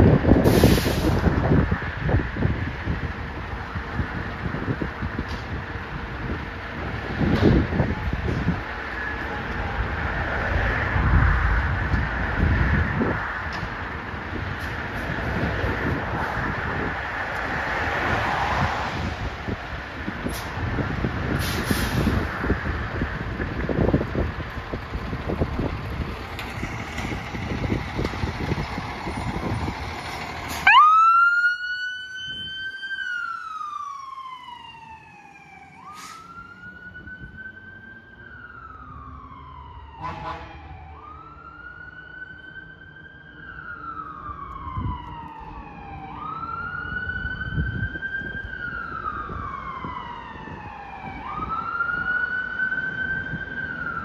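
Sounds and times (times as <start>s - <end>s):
fire engine siren wailing: 0.0s - 54.0s
low engine rumble: 19.1s - 31.3s.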